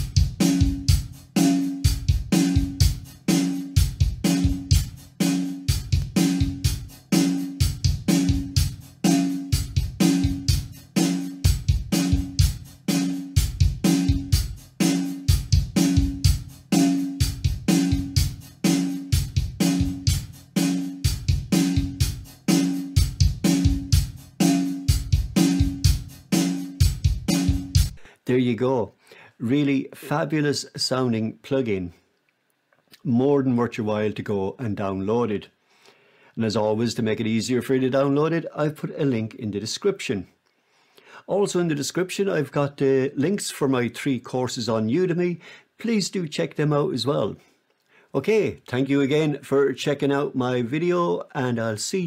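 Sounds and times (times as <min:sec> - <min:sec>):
acoustic drum kit groove: 0:00.0 - 0:28.1.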